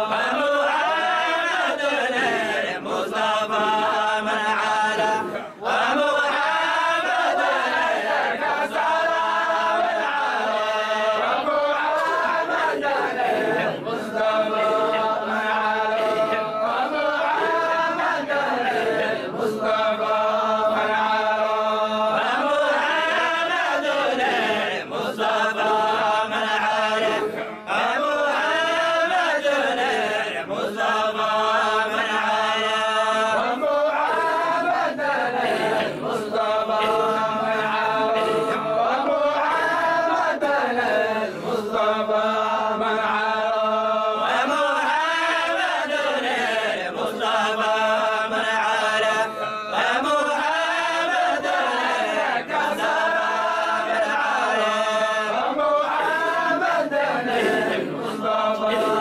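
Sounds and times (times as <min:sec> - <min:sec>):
men chanting together: 0:00.0 - 0:59.0.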